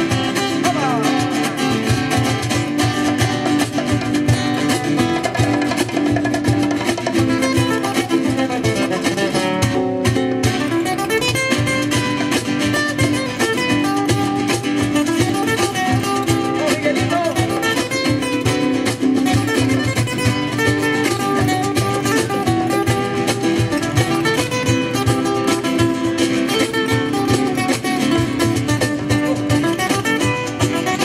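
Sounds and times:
acoustic guitars strumming: 0:00.0 - 0:31.0
hand drum percussion: 0:00.0 - 0:31.0.

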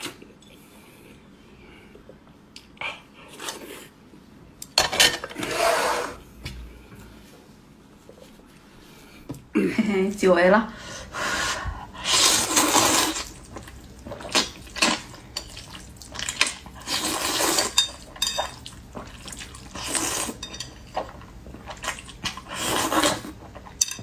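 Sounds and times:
noodles being slurped: 0:12.0 - 0:23.6.

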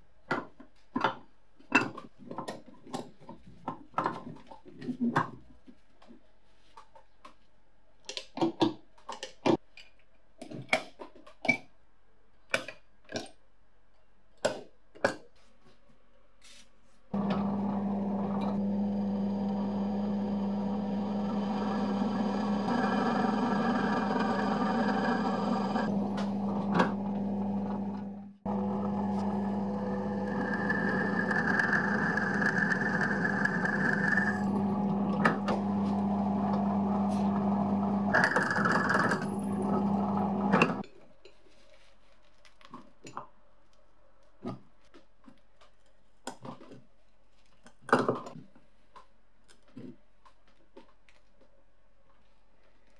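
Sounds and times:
drill press motor humming: 0:17.2 - 0:40.8
drill bit squealing: 0:21.2 - 0:25.9, 0:30.1 - 0:34.5.

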